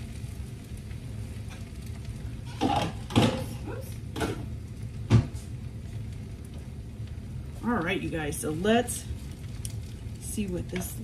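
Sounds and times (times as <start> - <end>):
dishes knocking and clinking: 2.5 - 3.6.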